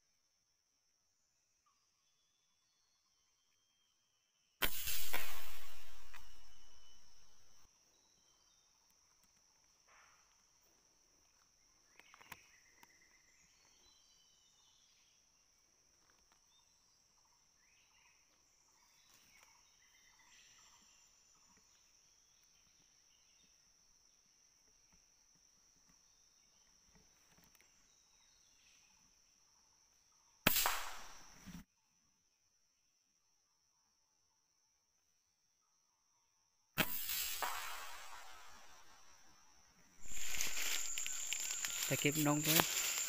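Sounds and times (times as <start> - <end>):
loud gunshot: 4.6 - 7.6, 30.5 - 31.4, 36.8 - 39.1
high insect drone: 4.6 - 15.2, 36.8 - 43.0
bird calls: 11.8 - 15.1, 40.0 - 43.0.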